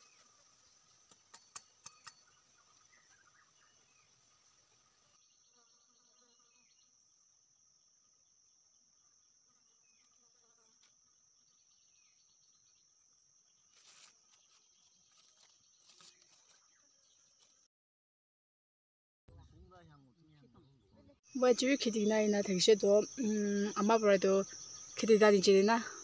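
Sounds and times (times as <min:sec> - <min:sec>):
birds chirping: 0:00.0 - 0:06.8
dry twigs and leaves rustling: 0:13.6 - 0:17.6
high-pitched insect drone: 0:21.3 - 0:26.0.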